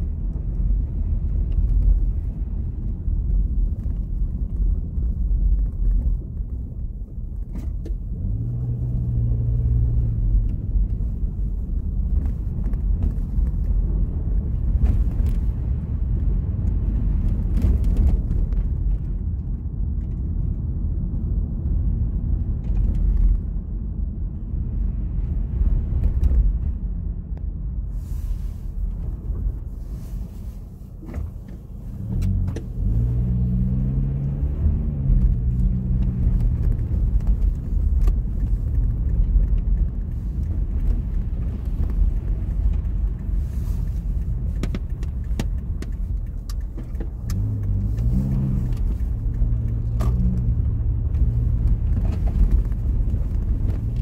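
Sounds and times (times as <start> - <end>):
car engine and road rumble: 0.0 - 54.0
sharp clicks and cracks: 36.0 - 53.8.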